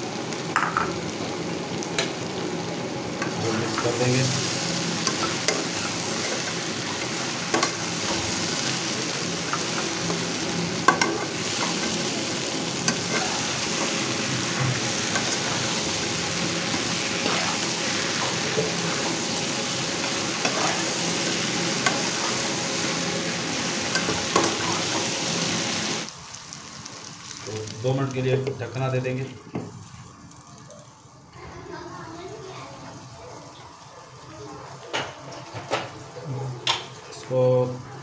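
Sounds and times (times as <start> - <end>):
vegetables sizzling in a wok: 0.0 - 38.0
metal spatula scraping a pan: 20.4 - 20.9.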